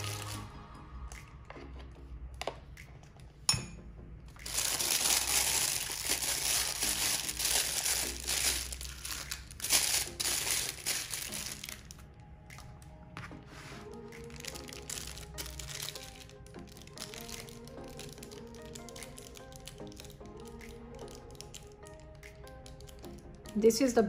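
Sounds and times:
plastic bag crinkling: 4.4 - 12.0, 13.9 - 20.2.

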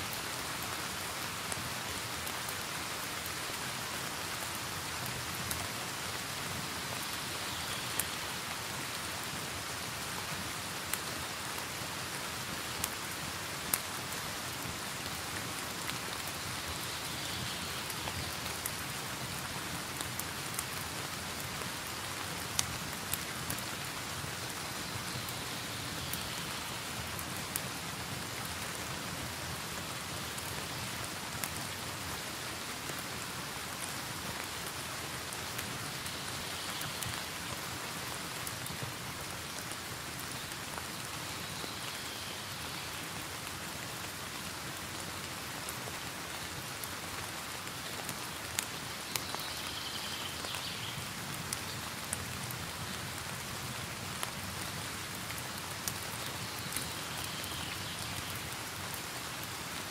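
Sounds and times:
rain hiss: 0.0 - 59.9.

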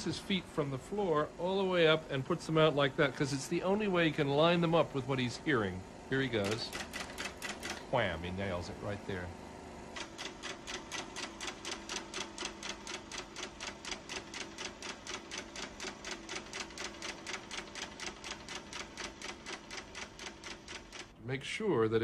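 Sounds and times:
rapid mechanical ticking: 6.2 - 7.9, 10.0 - 21.2.

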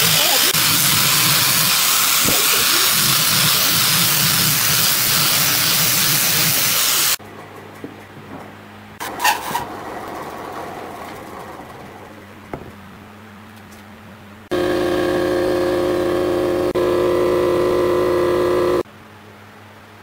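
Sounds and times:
motor-driven machine humming: 14.5 - 18.8.

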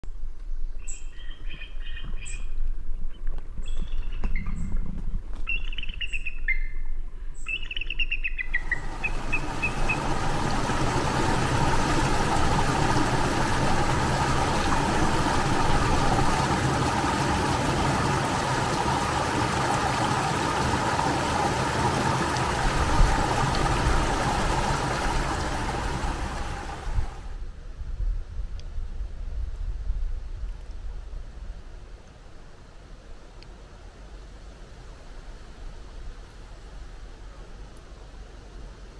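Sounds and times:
bird chirping: 0.5 - 4.8, 5.4 - 10.3
creek rushing over rocks: 8.6 - 27.4.

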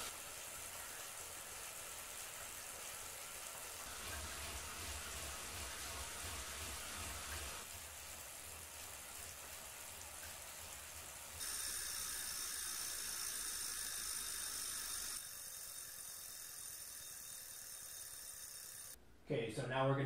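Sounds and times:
bike trainer whirring: 3.8 - 7.7, 11.4 - 19.0.

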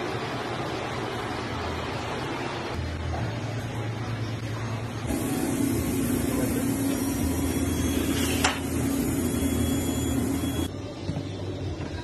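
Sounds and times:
pizza oven blower rushing: 5.1 - 10.7.

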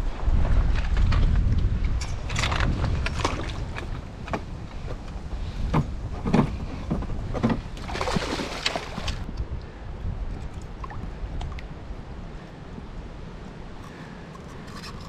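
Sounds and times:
wind rumble on microphone: 0.0 - 15.0
fish splashing in landing net: 7.9 - 9.2.

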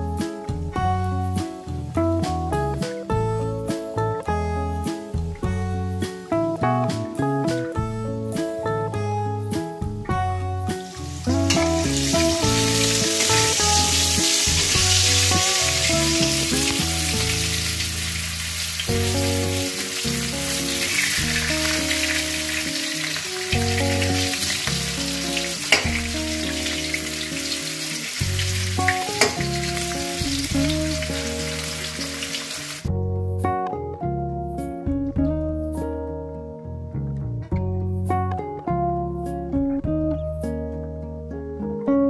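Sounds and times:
guitar music: 0.0 - 42.0
vegetables sizzling in hot oil: 10.7 - 32.9.

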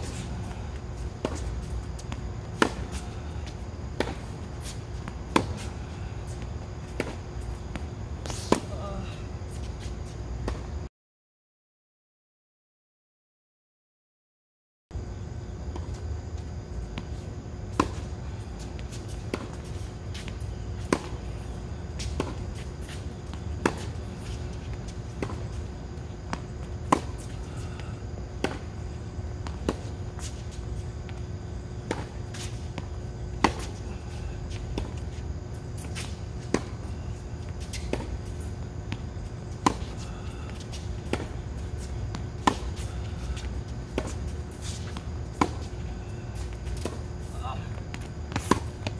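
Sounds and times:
steady low rumble: 0.0 - 10.8, 15.5 - 48.9
faint hum: 0.0 - 10.9, 15.0 - 48.9
tennis ball struck by racket: 33.4 - 33.8, 40.6 - 42.9, 48.3 - 48.9.

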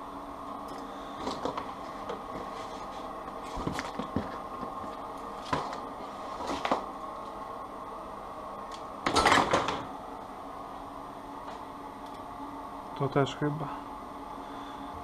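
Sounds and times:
steady background hum: 0.0 - 15.0
electrical wires rustling and clicking: 0.7 - 7.4.

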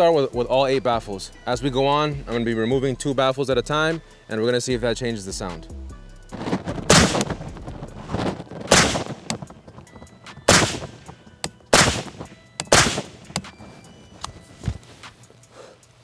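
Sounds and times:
suppressed gunshots: 6.9 - 7.5, 8.6 - 9.5, 10.4 - 11.1, 11.7 - 13.5.

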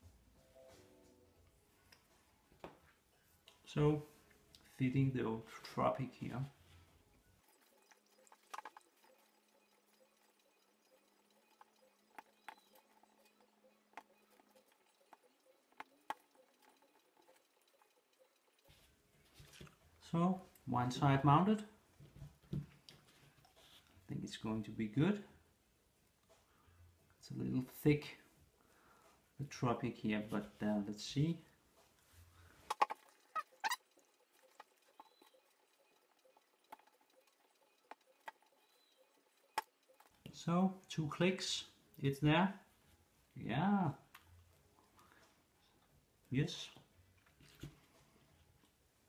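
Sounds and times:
rubber strap squeaks: 32.7 - 34.0.

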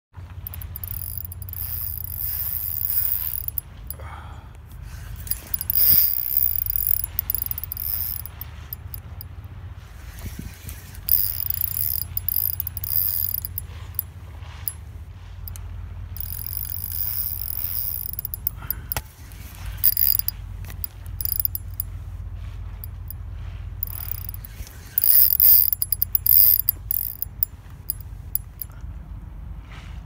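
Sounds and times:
fishing reel whirring: 0.4 - 4.0, 5.1 - 9.2, 10.9 - 14.8, 16.2 - 21.9, 23.8 - 28.7.

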